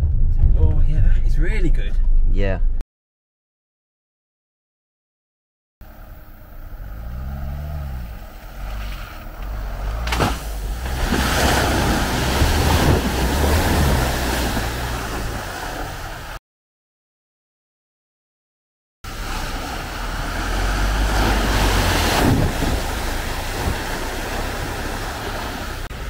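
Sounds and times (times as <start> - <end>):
diesel engine revving: 5.8 - 16.4, 19.1 - 26.0
water splashing: 7.0 - 16.4, 19.1 - 26.0.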